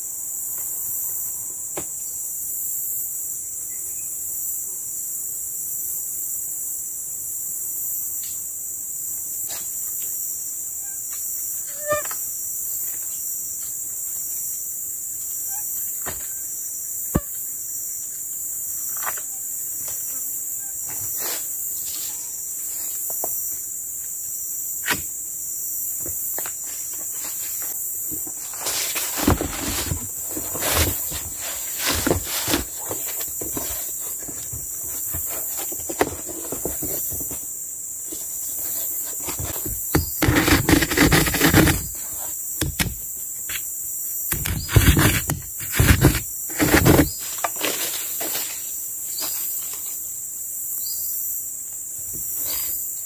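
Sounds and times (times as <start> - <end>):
insects buzzing: 0.0 - 53.0
cardboard rustling and scraping: 26.9 - 43.6, 44.3 - 49.4.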